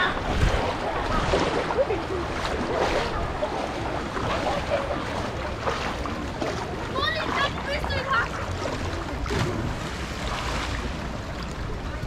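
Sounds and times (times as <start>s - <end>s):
wind noise on microphone: 0.0s - 1.8s
faint voices: 0.0s - 12.0s.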